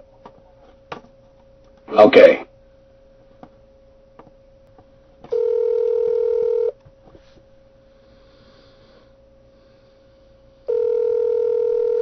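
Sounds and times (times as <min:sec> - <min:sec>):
telephone ringback tone: 0:05.3 - 0:06.8, 0:10.7 - 0:12.0.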